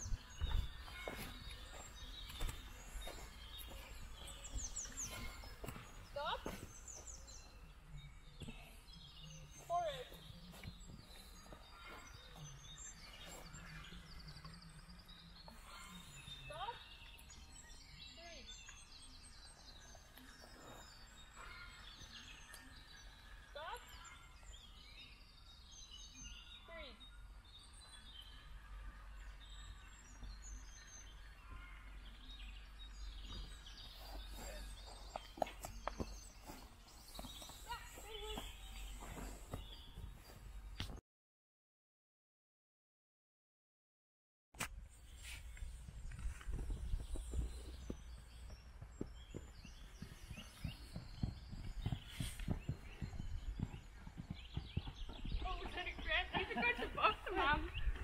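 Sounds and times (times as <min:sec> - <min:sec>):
horse hooves thudding on sand: 0:00.0 - 0:07.5, 0:32.9 - 0:41.0, 0:45.4 - 0:58.0
birds chirping and singing: 0:00.0 - 0:41.0, 0:45.0 - 0:58.0
person running footsteps: 0:00.4 - 0:06.8, 0:48.5 - 0:57.3.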